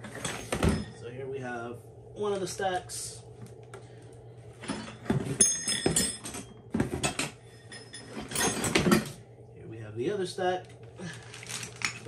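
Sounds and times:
high metallic ring: 0:04.7 - 0:06.6, 0:07.4 - 0:08.8.

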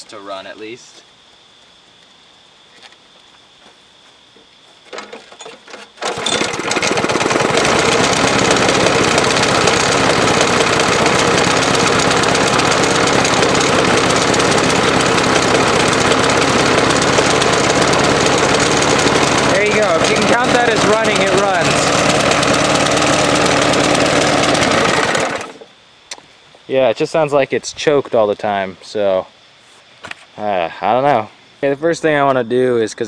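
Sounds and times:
lawn mower engine running rough: 0:04.9 - 0:25.7.

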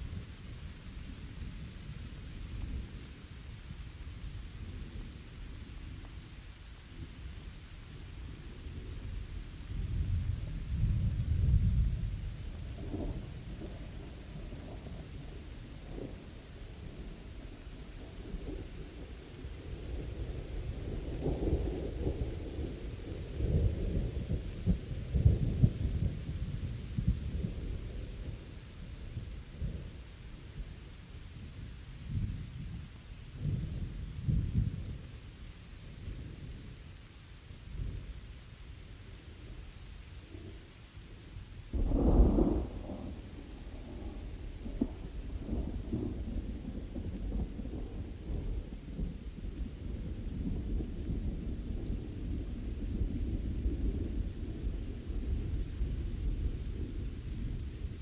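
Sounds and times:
steady rain: 0:00.0 - 0:58.0
rolling thunder: 0:09.8 - 0:30.0, 0:41.7 - 0:58.0.

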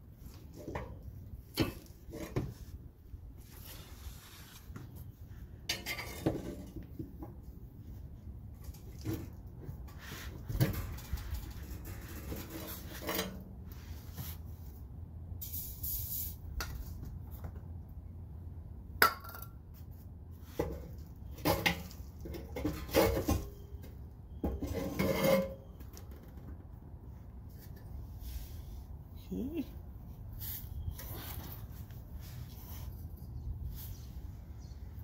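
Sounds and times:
spray can hiss: 0:15.4 - 0:16.4.

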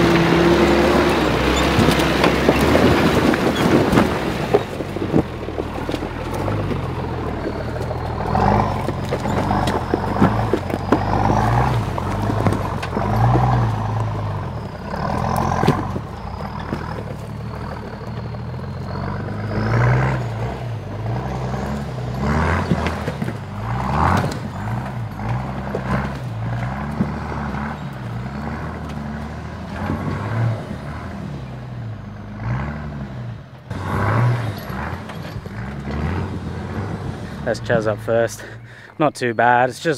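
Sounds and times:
tyres knocking on rocks: 0:00.0 - 0:14.5, 0:15.2 - 0:17.3, 0:22.3 - 0:28.2
off-road engine revving: 0:00.0 - 0:39.9.

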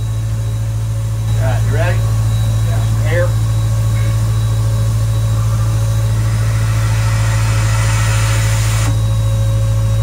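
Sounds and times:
steady low machine hum: 0:00.0 - 0:10.0.

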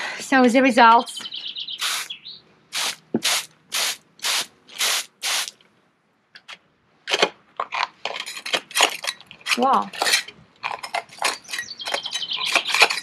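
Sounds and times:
hand tool scraping tile: 0:12.4 - 0:13.0.

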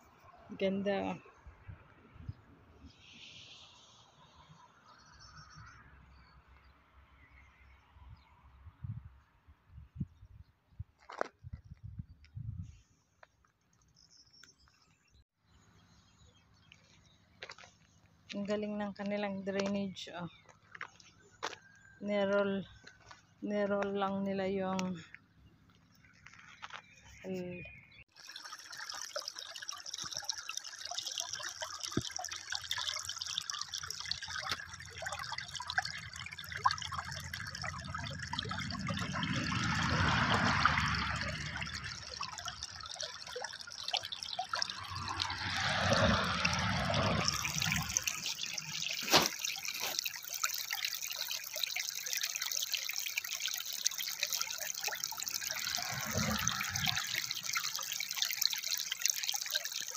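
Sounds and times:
water trickling over stones: 0:13.2 - 0:59.9.

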